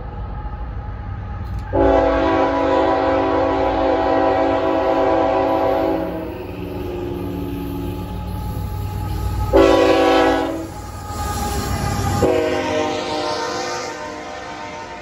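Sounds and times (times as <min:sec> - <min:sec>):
train wheels rumbling on rails: 0:00.0 - 0:15.0
locomotive air horn blasts: 0:01.7 - 0:08.1, 0:09.5 - 0:10.7, 0:12.2 - 0:15.0.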